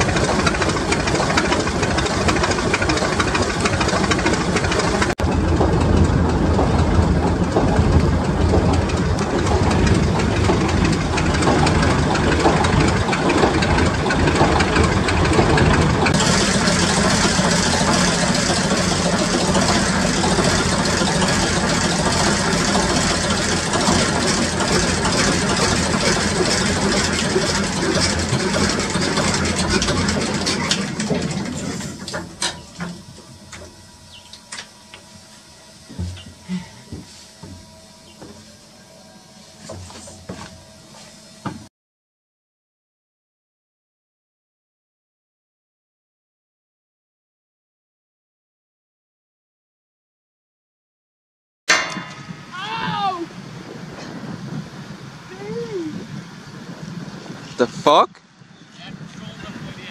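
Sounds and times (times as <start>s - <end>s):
marine diesel engine knocking: 0.0s - 34.2s.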